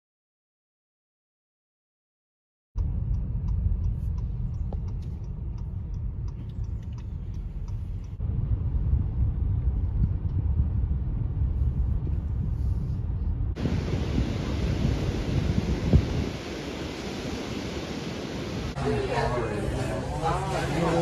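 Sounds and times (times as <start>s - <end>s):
faint clicks: 2.8s - 8.2s
car driving rumble: 2.8s - 21.0s.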